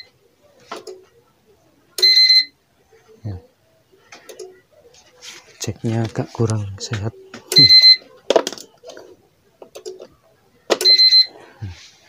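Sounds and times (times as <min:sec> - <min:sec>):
electronic beeps: 0:07.5 - 0:08.1.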